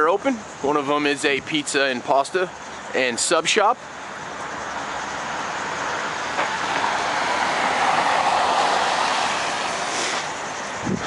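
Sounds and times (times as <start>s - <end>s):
car tyres hissing on wet road: 6.0s - 10.8s.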